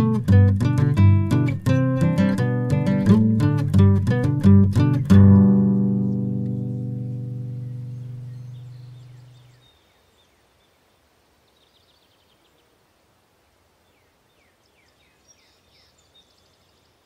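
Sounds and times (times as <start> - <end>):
plucked guitar note: 0.0 - 9.1
small birds chirping: 0.2 - 12.8, 13.8 - 17.0.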